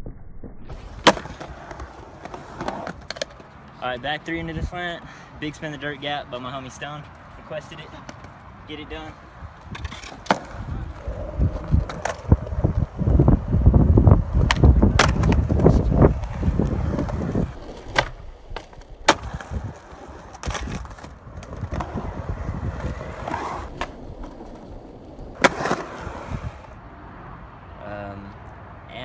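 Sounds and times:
skateboard popping and landing: 0.7s - 3.6s, 9.6s - 13.5s, 14.2s - 26.7s
skateboard wheels rolling on concrete: 0.7s - 28.2s.

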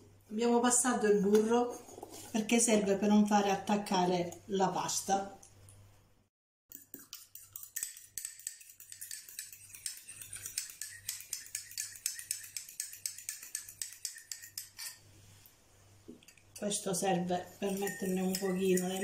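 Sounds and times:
fork beating egg in bowl: 6.7s - 15.0s, 16.3s - 19.0s.

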